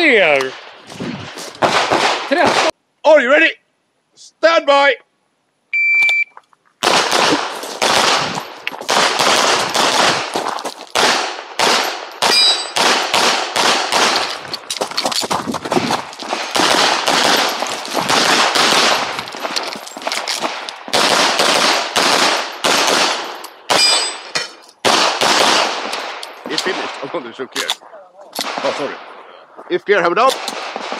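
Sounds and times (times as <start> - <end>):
pistol shots: 0.4 - 2.7, 6.8 - 14.4, 16.3 - 19.6, 20.4 - 27.1, 30.3 - 30.9.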